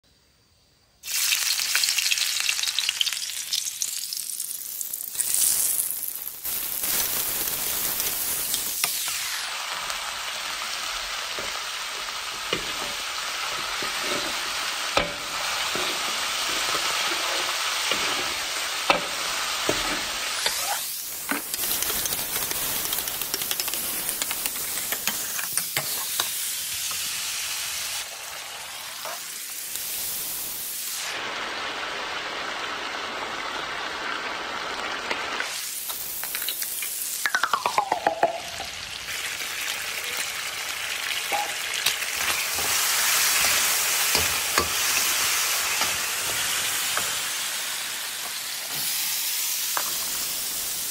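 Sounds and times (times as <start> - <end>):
meat sizzling in oil in a wok: 1.0 - 37.3, 38.3 - 50.9
metal ladle scraping a pan: 13.7 - 19.0.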